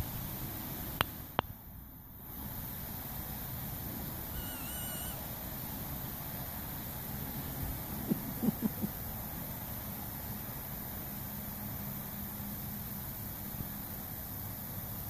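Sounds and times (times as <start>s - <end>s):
steady hiss: 0.0s - 15.0s
faint wavering whistle: 4.3s - 5.2s
low hooting animal calls: 4.3s - 5.3s.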